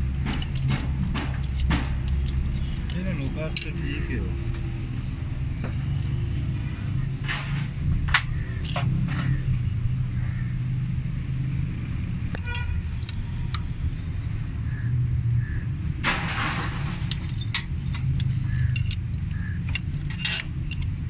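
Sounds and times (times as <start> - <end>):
metallic tool clinks: 0.3 - 3.9, 12.4 - 14.1, 17.1 - 21.0.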